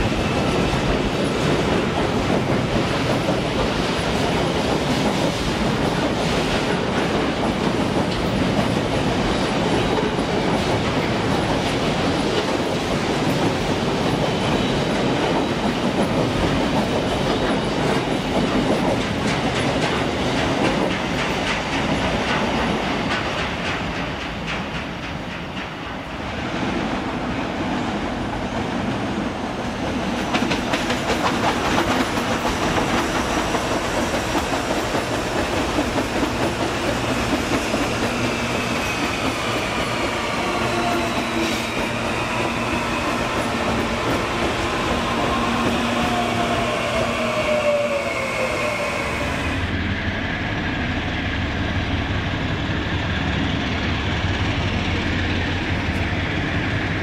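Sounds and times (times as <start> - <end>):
electric train whine: 0.0 - 57.0
diesel locomotive engine hum: 28.6 - 57.0.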